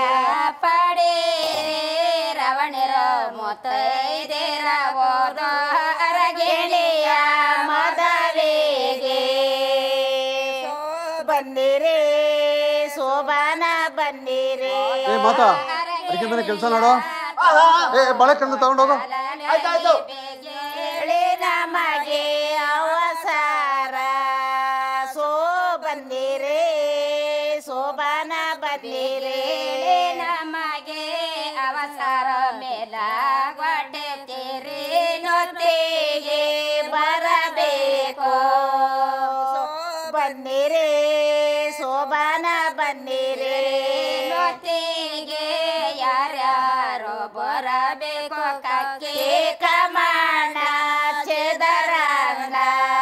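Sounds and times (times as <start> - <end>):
high voice singing: 14.0 - 21.1.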